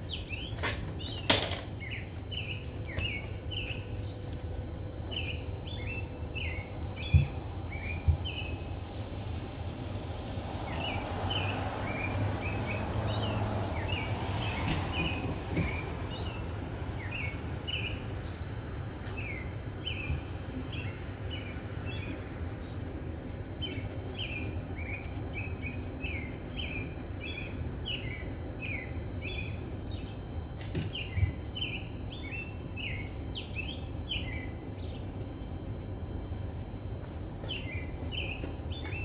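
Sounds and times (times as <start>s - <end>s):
steady low rumble: 0.0s - 30.5s
small birds chirping: 0.0s - 39.0s.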